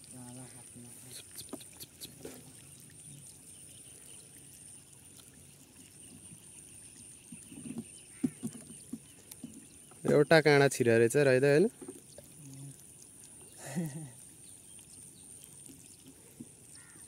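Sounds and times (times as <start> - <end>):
water trickling and splashing: 0.0 - 17.0.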